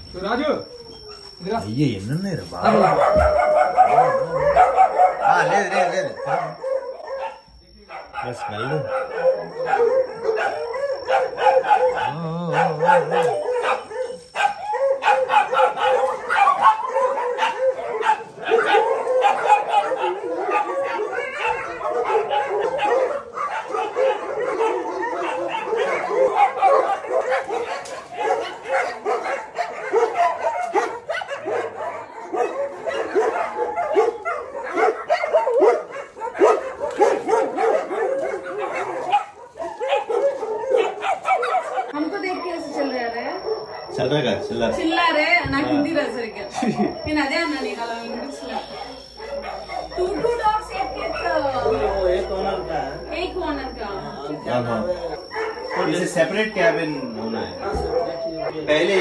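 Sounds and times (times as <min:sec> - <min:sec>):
dog howling: 0:00.0 - 0:59.0
dogs barking: 0:02.2 - 0:59.0.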